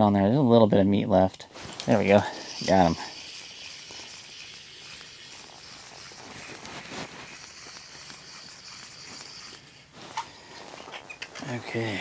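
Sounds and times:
fishing line rustling: 1.4s - 12.0s
steady hiss: 1.4s - 12.0s
fishing reel clicking: 1.8s - 10.4s.

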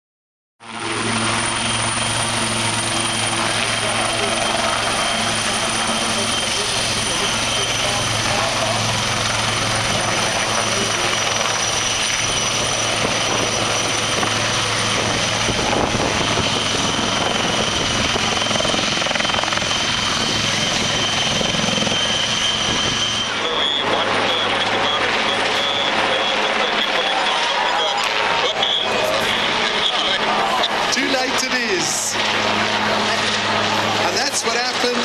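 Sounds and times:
helicopter overhead: 0.6s - 35.0s
helicopter rotor beat: 0.6s - 35.0s
high turbine whine: 0.6s - 35.0s.

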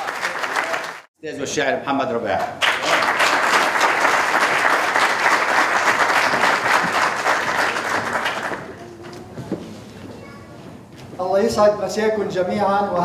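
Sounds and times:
audience applauding: 0.0s - 1.1s, 2.6s - 8.8s.

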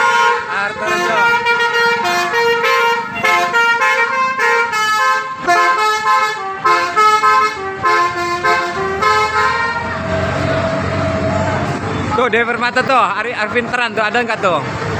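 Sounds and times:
bus horn playing a tune: 0.0s - 11.6s.

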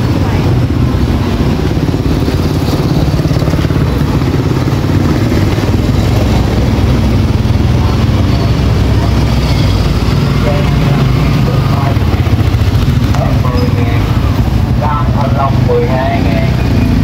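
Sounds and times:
small engine running: 1.0s - 14.5s.

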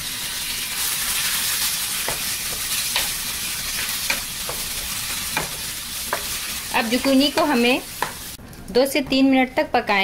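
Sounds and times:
zucchini sizzling in hot oil: 0.0s - 8.4s.

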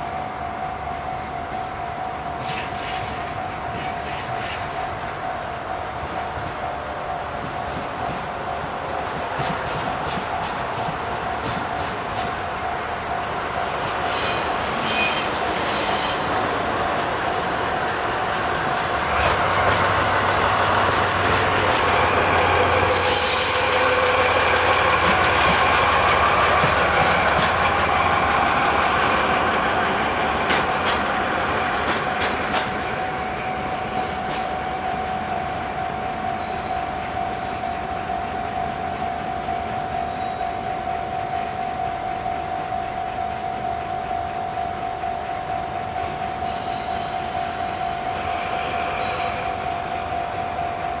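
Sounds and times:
diesel locomotive passing: 0.0s - 51.0s
wheels clicking over rail joints: 30.2s - 32.9s
level crossing warning bell: 32.8s - 51.0s.

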